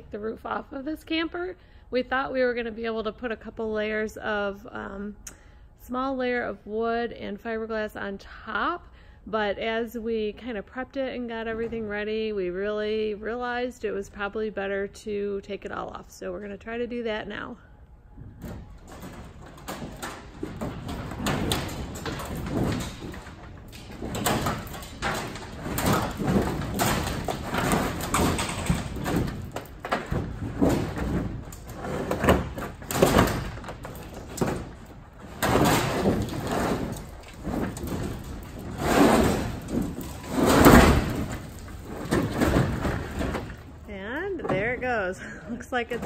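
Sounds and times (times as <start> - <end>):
sheet metal scraping and rattling: 18.2 - 46.0.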